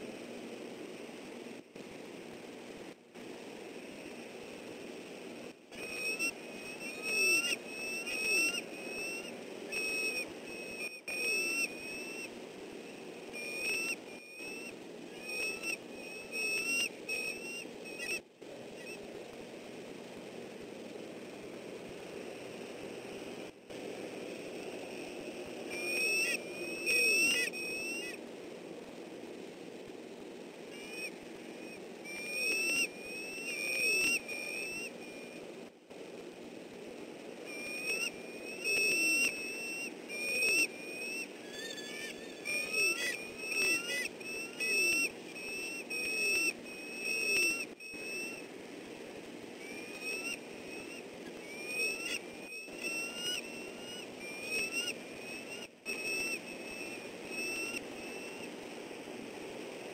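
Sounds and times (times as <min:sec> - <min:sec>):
steady outdoor hiss: 0:00.0 - 0:59.9
eagles chirping calls: 0:05.7 - 0:19.0, 0:24.3 - 0:28.2, 0:30.7 - 0:35.4, 0:37.3 - 0:48.5, 0:49.2 - 0:59.5
lower falling bird notes: 0:05.7 - 0:19.0, 0:24.0 - 0:28.2, 0:30.7 - 0:35.4, 0:37.4 - 0:48.6, 0:49.3 - 0:59.2.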